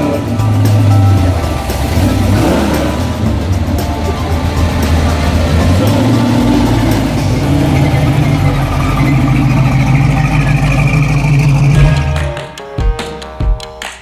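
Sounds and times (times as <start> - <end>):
car engine idling: 0.0 - 12.5.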